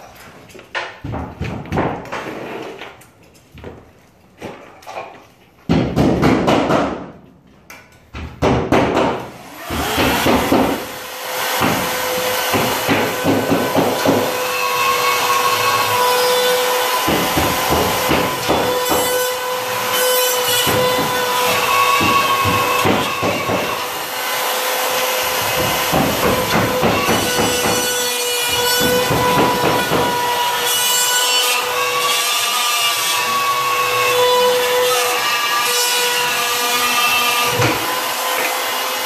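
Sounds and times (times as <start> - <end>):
hand saw cutting drywall: 8.5 - 39.0.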